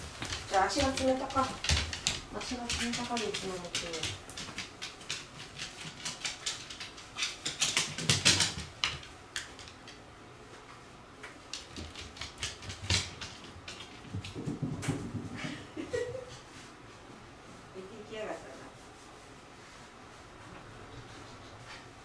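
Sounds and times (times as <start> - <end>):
dog claws clicking on wooden floor: 0.1 - 10.0, 11.5 - 15.1.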